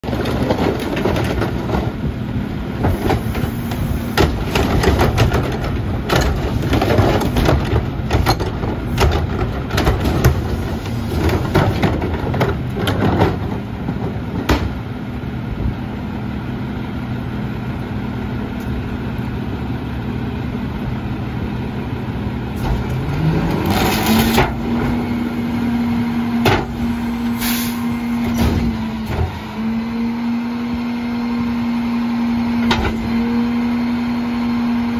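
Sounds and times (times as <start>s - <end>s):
diesel engine running: 0.0s - 34.9s
trash banging into hopper: 2.8s - 14.8s, 22.6s - 29.6s
short hisses: 27.3s - 27.9s.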